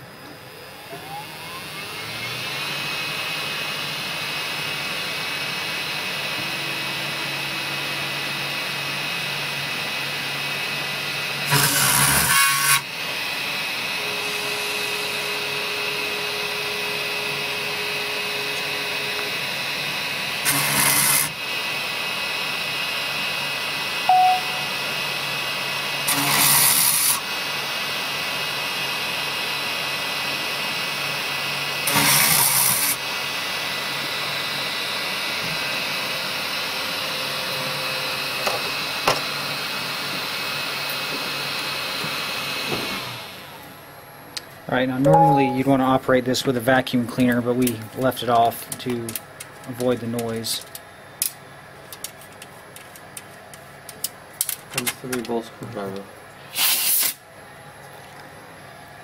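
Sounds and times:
end mill cutting circuit board: 0:11.1 - 0:12.9, 0:20.4 - 0:21.4.

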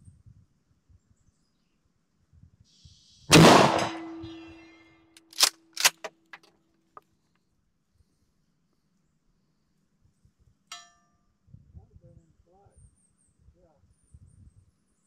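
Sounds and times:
shotgun shot with echo: 0:03.3 - 0:04.7
shotgun pump clacks: 0:05.2 - 0:06.5
small clicks: 0:05.2 - 0:06.5.

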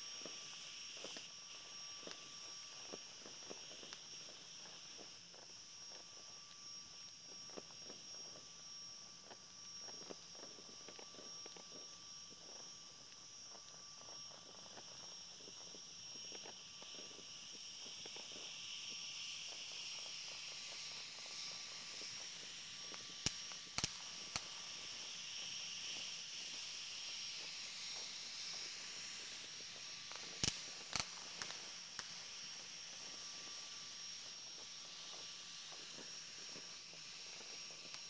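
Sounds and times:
distant fireworks popping: 0:23.2 - 0:25.1, 0:29.2 - 0:33.6.

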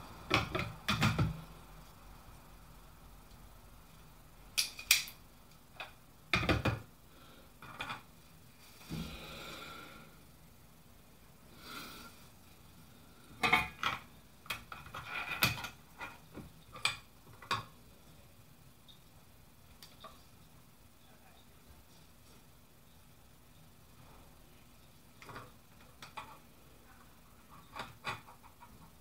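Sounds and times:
soft hissing: 0:07.0 - 0:13.4.

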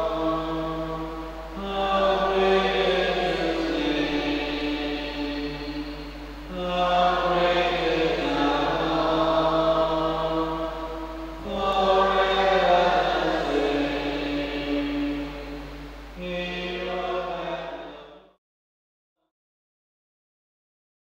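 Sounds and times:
slow hymn singing: 0:00.0 - 0:18.4.

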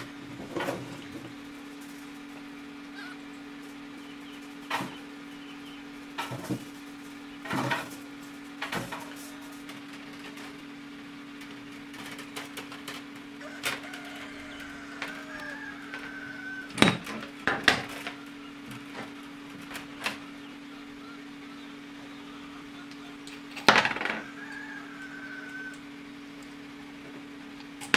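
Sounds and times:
steady low hum: 0:00.0 - 0:27.9.

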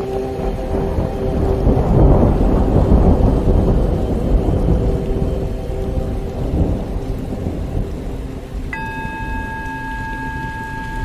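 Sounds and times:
faint held drone: 0:00.0 - 0:11.0
rain hissing: 0:00.0 - 0:11.0
thunder rumbling: 0:00.0 - 0:11.0.

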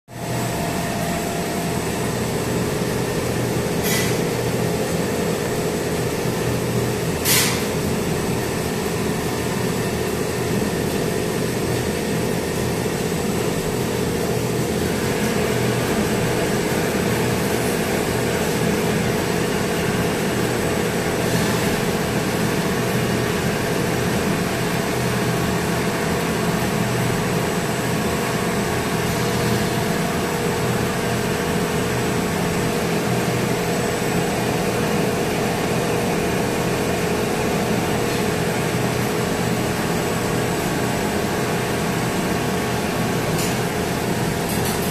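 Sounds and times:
workshop machinery humming: 0:00.1 - 0:44.9.

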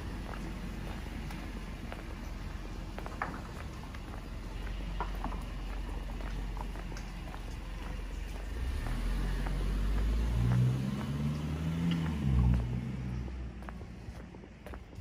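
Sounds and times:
car driving past: 0:07.2 - 0:14.2.

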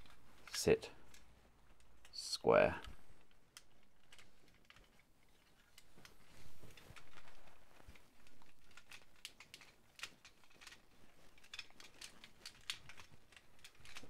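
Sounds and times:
plastic toy parts clicking: 0:02.8 - 0:14.0.

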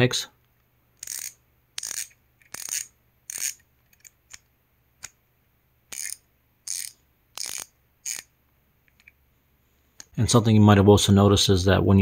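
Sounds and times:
ratcheting screwdriver clicking: 0:01.0 - 0:04.4, 0:05.9 - 0:08.3.

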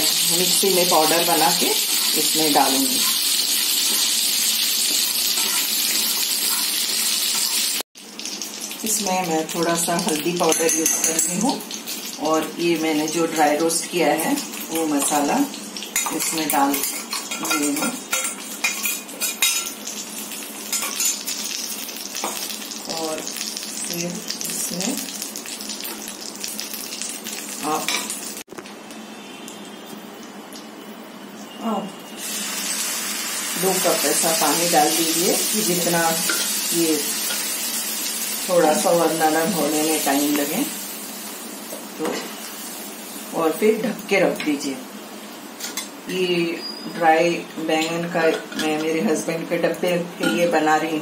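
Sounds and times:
frying sizzle: 0:00.0 - 0:51.0
spatula stirring in a pan: 0:03.1 - 0:07.7.

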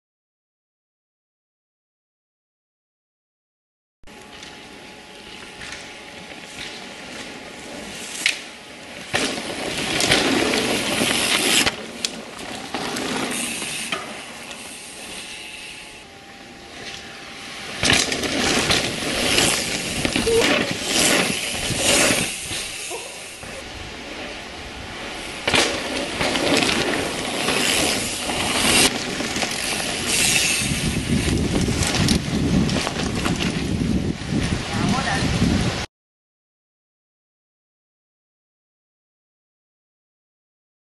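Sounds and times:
bike tyres on dirt trail: 0:04.1 - 0:35.8
bike knocks and clatters: 0:08.2 - 0:14.3, 0:17.8 - 0:22.8.

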